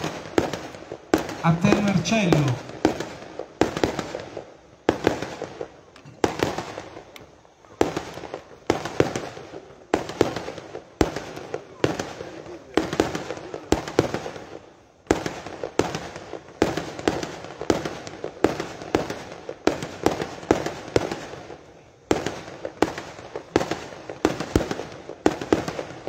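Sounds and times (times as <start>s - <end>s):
fireworks bangs: 0.0s - 26.0s
fireworks crackling: 0.0s - 26.0s.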